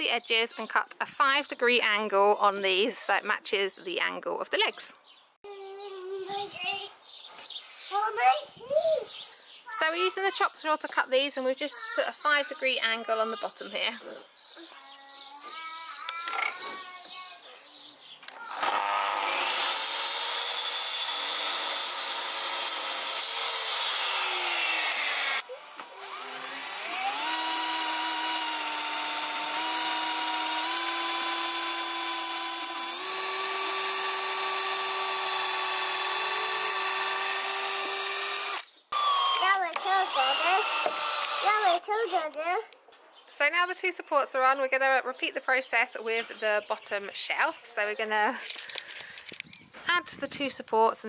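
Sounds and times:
cordless drill whining: 18.3 - 41.7
mitre saw cutting: 18.5 - 41.7.

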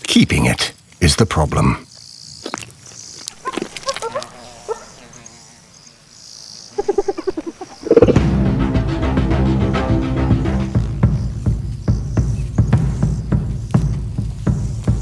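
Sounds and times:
insect chorus buzzing: 1.6 - 8.3, 10.8 - 15.0
low pulses: 6.7 - 9.2
loud soundtrack music: 8.1 - 11.0.

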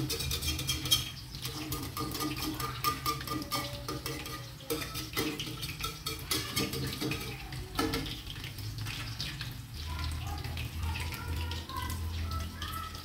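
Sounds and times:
spatula scraping wok: 0.0 - 9.2
food sizzling in oil: 0.0 - 13.0.

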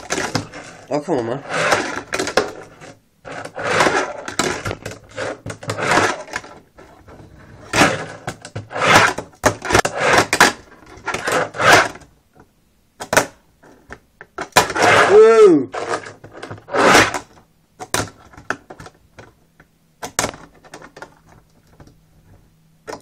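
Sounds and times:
fingerboard rolling on ramp: 1.4 - 12.0.

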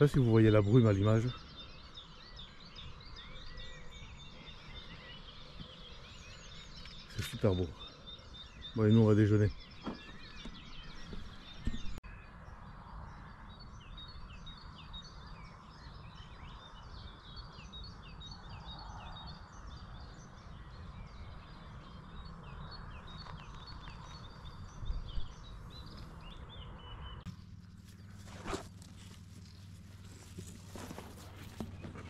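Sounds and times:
small birds chirping: 0.0 - 32.0.

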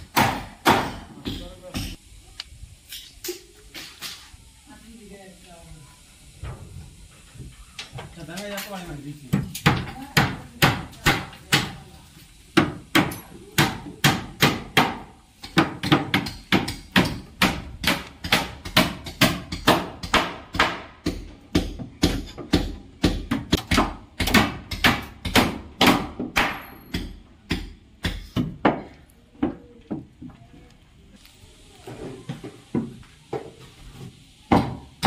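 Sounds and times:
hammer knocking on wood: 9.3 - 11.8.

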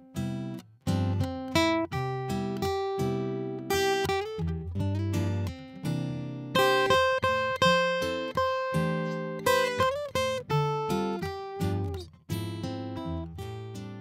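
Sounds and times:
acoustic guitar music: 0.0 - 14.0.

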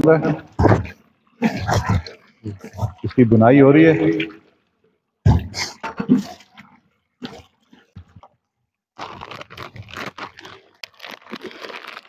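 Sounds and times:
crinkling and scraping of scooping: 9.0 - 12.0.

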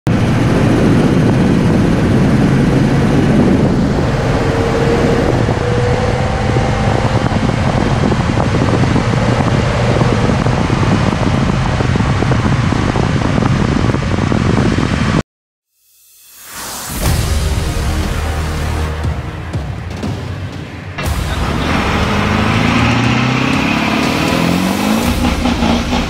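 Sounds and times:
low engine drone: 0.1 - 15.2, 16.5 - 26.0
wind and road noise: 0.1 - 15.2, 16.8 - 26.0.

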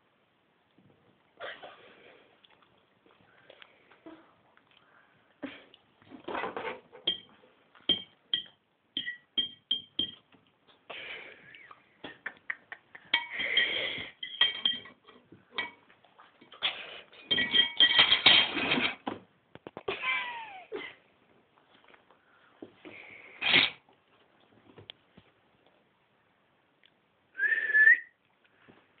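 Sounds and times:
cutlery clinking on plate: 7.9 - 10.3, 13.1 - 15.8, 17.2 - 19.0.

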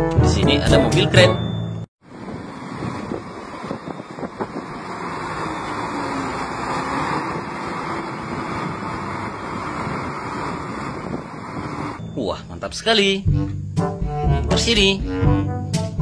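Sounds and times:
diesel engine running: 2.0 - 12.8.

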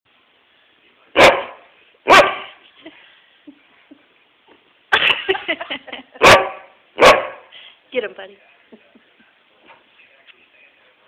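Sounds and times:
dog barking: 1.2 - 2.6, 6.2 - 7.5.

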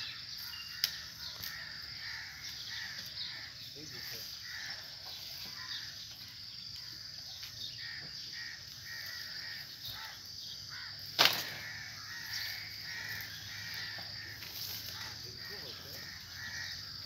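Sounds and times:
crows cawing: 0.0 - 17.0
sharp crack: 11.0 - 11.9.

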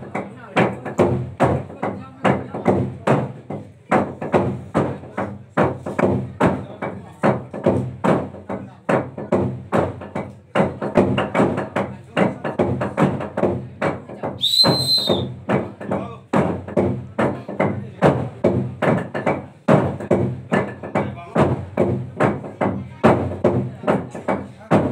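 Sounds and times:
log drum pounding: 0.0 - 24.9
whistle blowing: 14.4 - 15.3.

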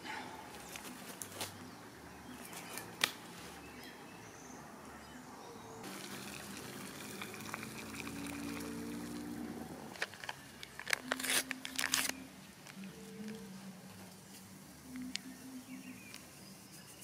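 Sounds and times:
water boiling in metal pot: 5.8 - 9.6.

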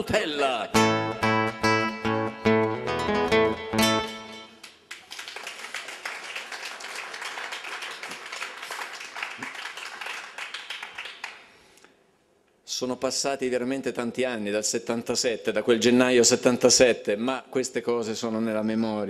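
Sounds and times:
acoustic guitar: 0.0 - 4.6
audience applause: 4.6 - 11.5.

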